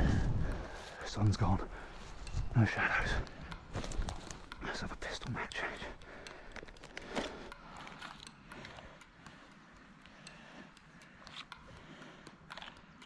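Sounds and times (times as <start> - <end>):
pistol magazine clicks and rattles: 6.2 - 8.8, 12.5 - 13.0.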